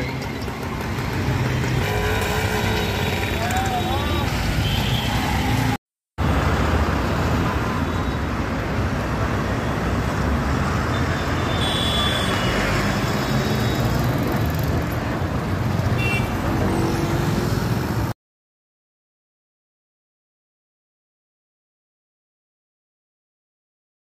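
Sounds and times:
street traffic rumble: 0:00.0 - 0:18.2.

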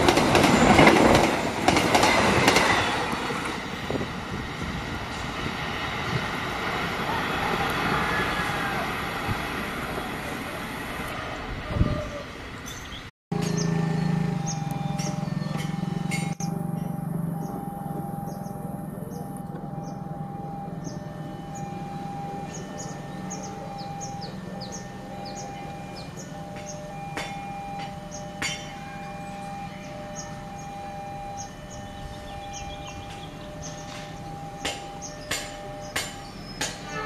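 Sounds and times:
train rumble: 0:00.0 - 0:37.0
level crossing alarm tone: 0:13.3 - 0:37.0
sharp knocks: 0:33.9 - 0:36.9.

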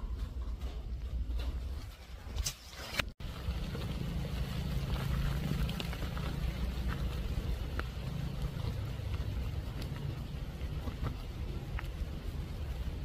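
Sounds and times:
low rumble on microphone: 0:03.2 - 0:13.0
pouring rain: 0:03.2 - 0:13.0
sharp ticks of raindrops: 0:03.2 - 0:13.0.

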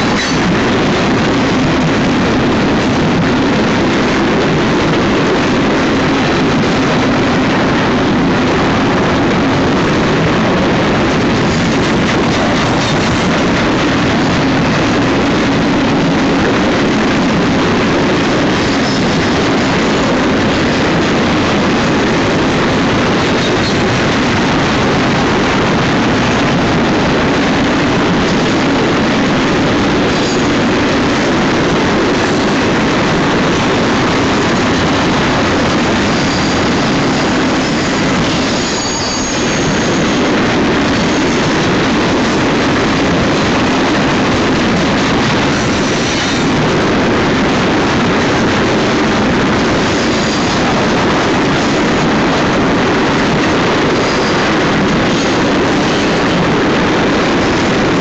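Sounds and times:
freight train rumbling and rattling: 0:00.0 - 0:58.0
high wheel squeals: 0:37.6 - 0:40.2.

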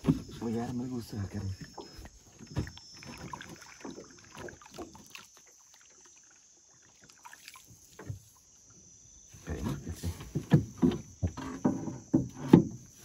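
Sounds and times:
paddle splashes and knocks: 0:00.0 - 0:08.5, 0:09.5 - 0:13.0.

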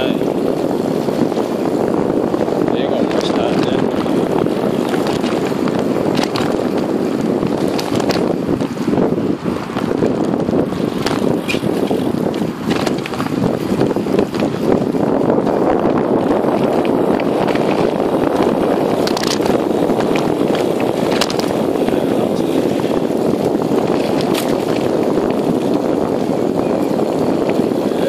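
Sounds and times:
bike tyres rolling on tarmac: 0:00.0 - 0:28.0
wind rushing over microphone: 0:00.0 - 0:28.0
sharp clicks or rattles: 0:18.9 - 0:21.6.

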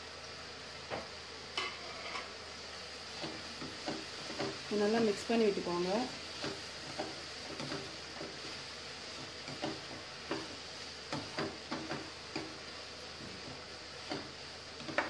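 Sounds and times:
faint steady hiss: 0:00.0 - 0:15.0
spatula tapping and scraping a pan: 0:03.1 - 0:04.7, 0:06.3 - 0:08.6, 0:09.2 - 0:15.0.

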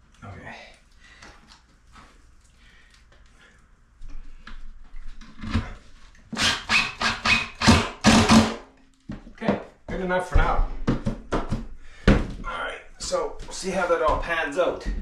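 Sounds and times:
cordless drill driving screw: 0:06.4 - 0:08.6.

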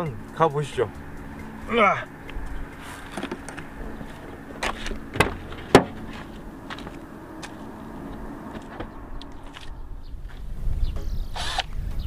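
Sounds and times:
outdoor background noise: 0:00.0 - 0:12.0
sharp clicks and knocks: 0:03.0 - 0:07.6.

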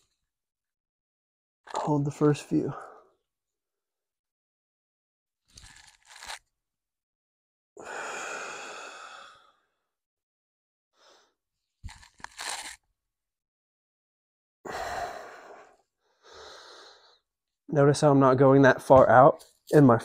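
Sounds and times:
man breathing hard: 0:07.8 - 0:09.7, 0:14.7 - 0:17.2.

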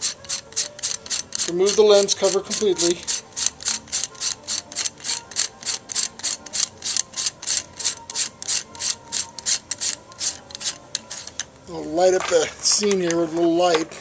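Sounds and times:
threads rasping while unscrewing: 0:00.0 - 0:14.0.

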